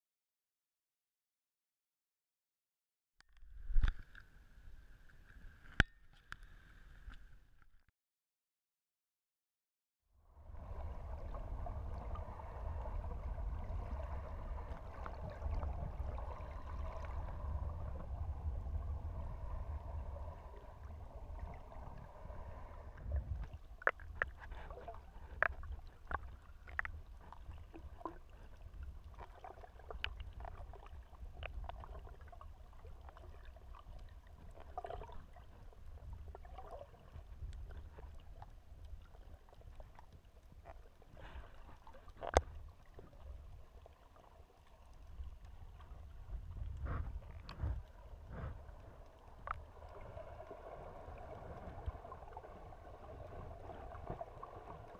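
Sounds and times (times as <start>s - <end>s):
sharp clicks and gurgles: 3.2s - 4.4s, 5.0s - 7.9s, 22.9s - 54.9s
muffled underwater water rumble: 10.1s - 54.9s.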